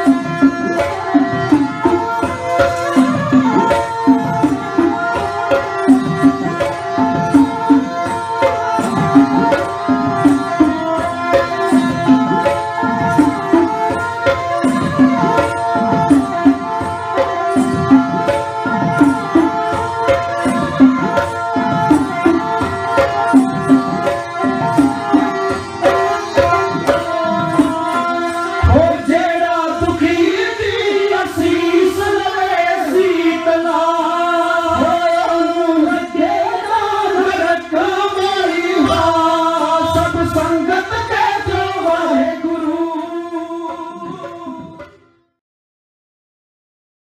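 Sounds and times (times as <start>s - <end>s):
bowed sarangi melody: 0.0s - 45.4s
person singing: 26.2s - 45.0s.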